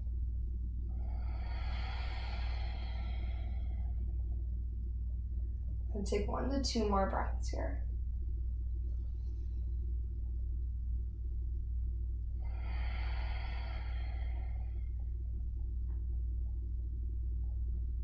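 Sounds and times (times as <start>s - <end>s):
low room rumble: 0.0s - 18.0s
long breath out: 1.0s - 4.1s, 12.4s - 15.1s.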